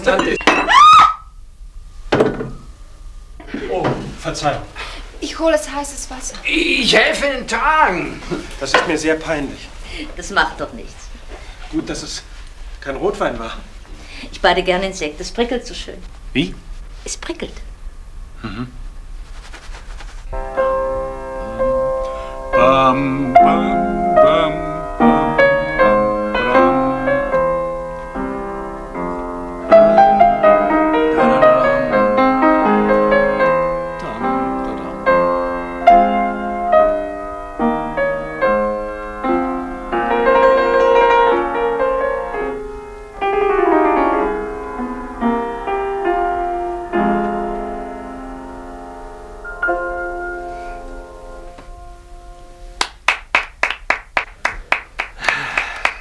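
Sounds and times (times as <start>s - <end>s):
solo piano classical piece: 20.3s - 52.8s.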